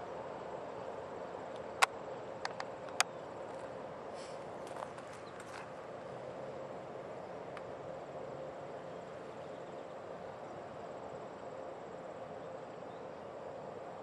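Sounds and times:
crickets chirping: 0.0s - 14.0s
faint constant hum: 0.0s - 14.0s.

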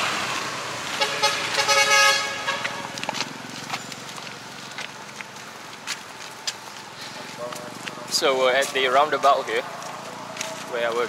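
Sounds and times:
passing road traffic: 0.0s - 11.0s
vehicle horn honking: 1.0s - 2.9s.

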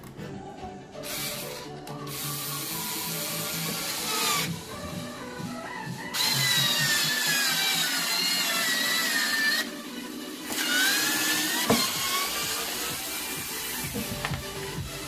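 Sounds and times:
electric screwdriver whining: 1.0s - 4.9s, 6.1s - 14.8s.

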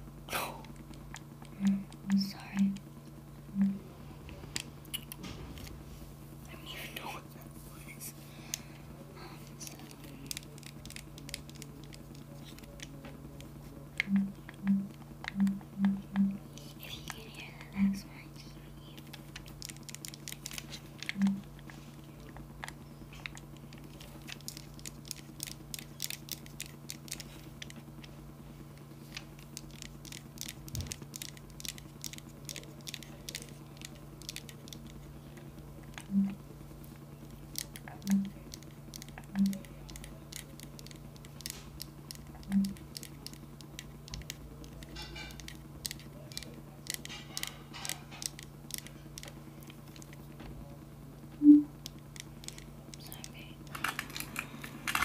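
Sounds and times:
controller buttons clicking: 1.2s - 2.8s, 3.5s - 3.8s, 9.7s - 18.0s, 19.1s - 21.5s, 37.6s - 47.5s
short low buzzes: 1.4s - 6.7s, 12.9s - 16.8s, 20.9s - 22.3s, 35.8s - 37.4s, 38.0s - 39.9s, 42.2s - 43.2s, 51.3s - 51.8s.

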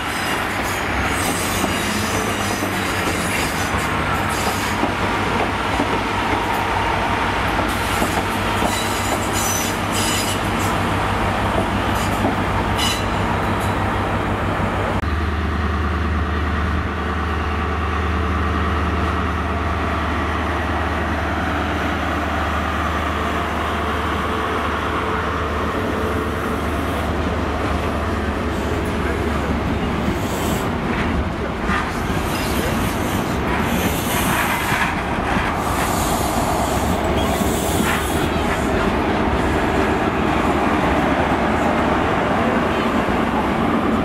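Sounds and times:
train wheel and rail noise: 0.0s - 44.0s.

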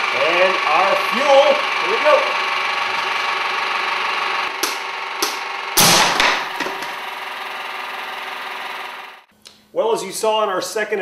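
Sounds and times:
air compressor running: 0.0s - 9.3s
loud explosion bang: 5.8s - 6.6s.

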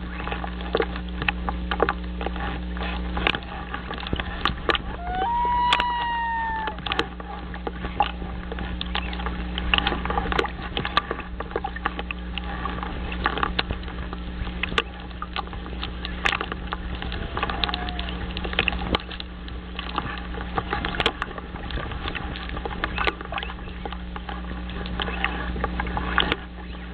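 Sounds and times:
steady low hum: 0.0s - 26.9s
bird call: 5.0s - 6.8s.

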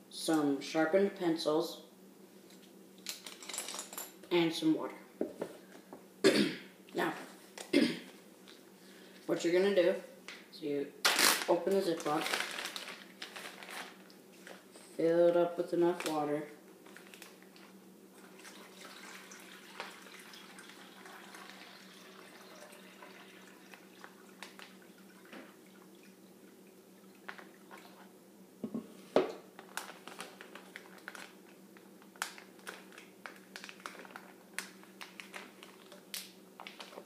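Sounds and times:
plastic bag crinkling: 11.0s - 14.6s, 16.8s - 17.7s, 29.6s - 37.0s
water pouring into plastic bag: 12.0s - 13.9s, 18.2s - 26.2s.

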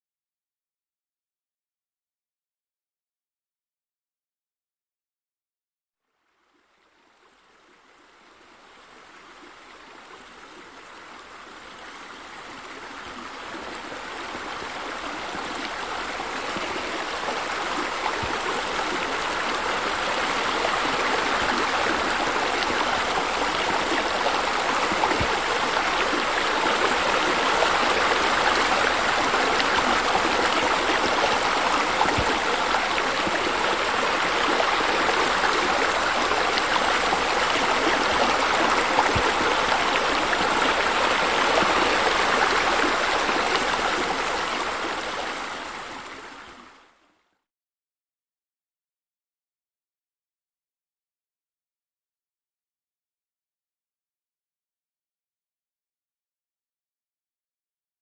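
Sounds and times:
running water rushing: 7.1s - 46.7s.

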